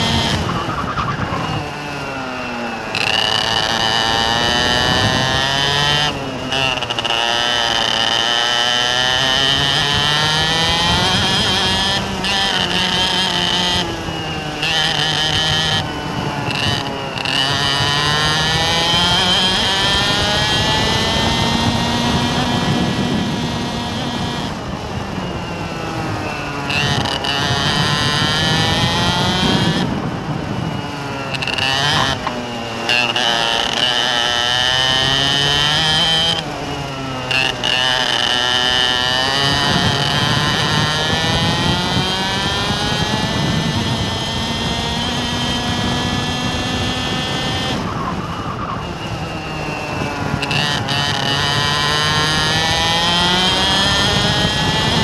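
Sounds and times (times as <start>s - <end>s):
vehicle engine accelerating: 0.0s - 55.0s.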